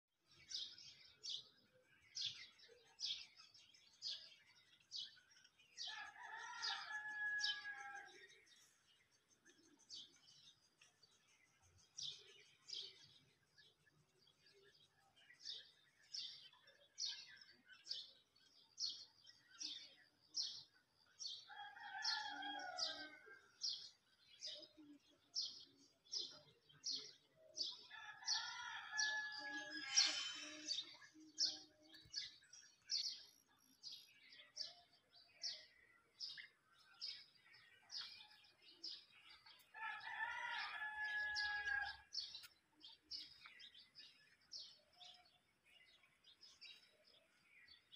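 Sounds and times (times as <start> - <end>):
rooster crowing: 5.9 - 8.1, 27.9 - 30.7, 39.7 - 42.0
high bird chirps: 28.6 - 32.1.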